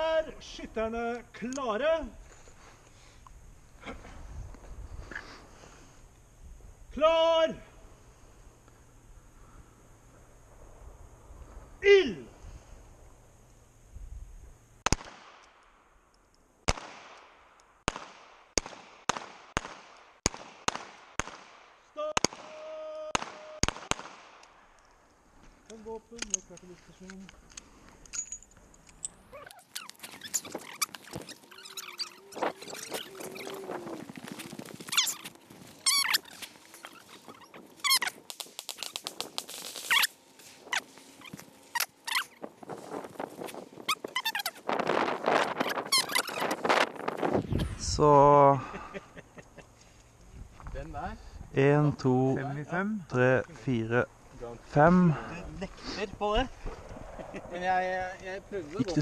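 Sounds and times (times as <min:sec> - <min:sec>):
revolver gunshots with echo: 0:23.2 - 0:24.4
high wavering squeaks: 0:29.0 - 0:42.5, 0:43.4 - 0:44.7, 0:45.4 - 0:46.9
footsteps on gravel: 0:29.6 - 0:38.3.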